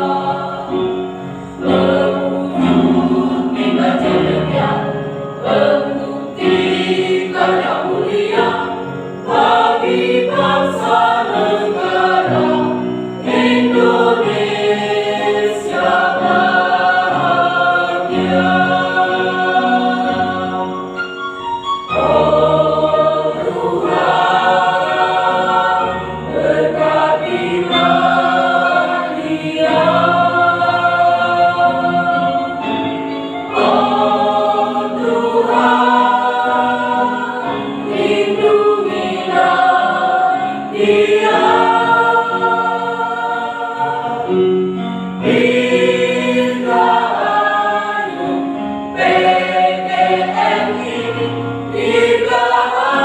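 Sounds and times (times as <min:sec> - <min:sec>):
mixed choir singing in harmony: 0:00.0 - 0:53.0.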